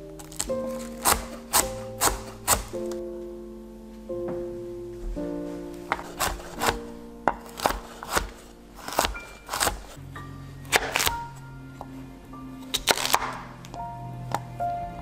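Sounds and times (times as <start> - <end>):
background music: 0.0 - 15.0
knife cutting on wooden board: 0.3 - 2.9, 5.8 - 10.0, 10.7 - 11.2.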